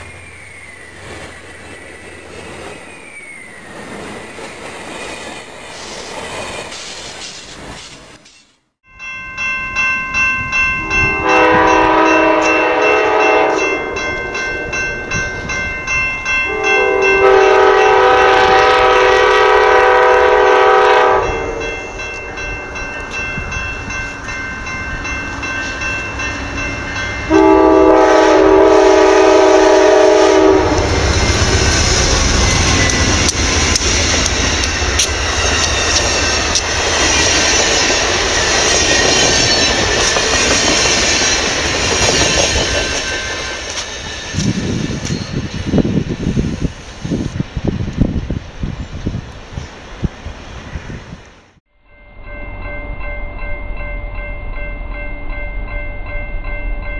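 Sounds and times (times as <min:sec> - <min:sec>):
train wheels rumbling on rails: 0:00.0 - 0:08.6, 0:10.5 - 0:51.6
crossing bell ringing: 0:08.4 - 0:46.1, 0:51.8 - 0:56.9
locomotive horn blasts: 0:10.8 - 0:14.8, 0:16.5 - 0:22.8, 0:27.3 - 0:31.6.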